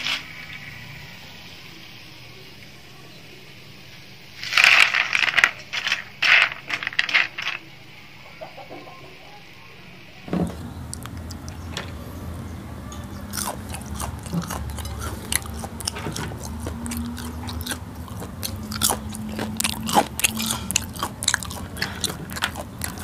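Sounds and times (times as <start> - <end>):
food clattering onto plastic plate: 12.9 - 23.0.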